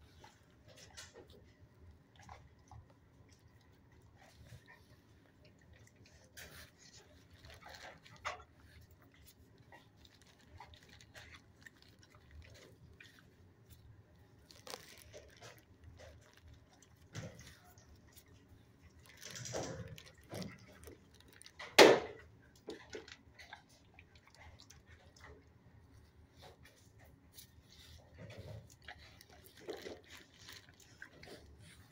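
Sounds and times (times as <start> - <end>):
dog crunching treats: 0.0 - 31.9
rustling: 4.1 - 21.8, 25.9 - 31.9.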